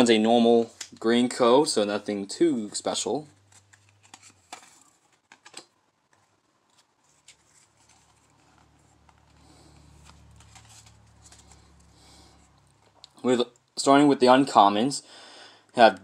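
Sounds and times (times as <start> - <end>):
trading cards rustling: 2.6 - 13.2.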